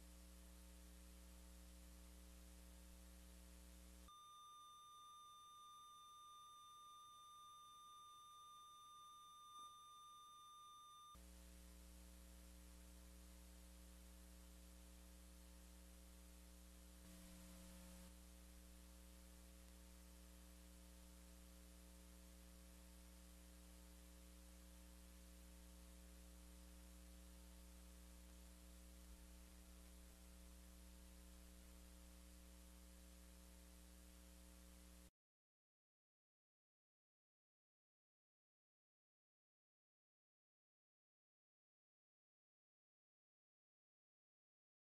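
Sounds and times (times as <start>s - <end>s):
faint electrical hum: 0.0s - 35.1s
faint high tone: 4.1s - 11.2s.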